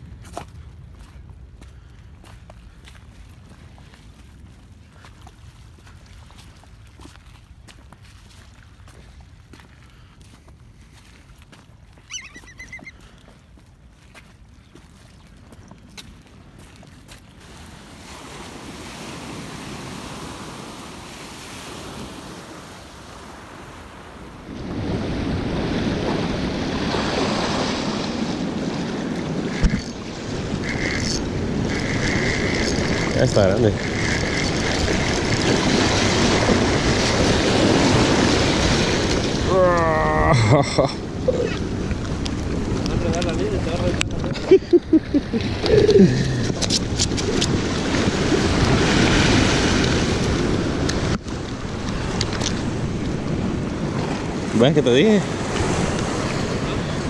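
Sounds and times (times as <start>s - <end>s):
surf washing against rocks: 17.2s - 57.0s
wind buffeting microphone: 41.0s - 57.0s.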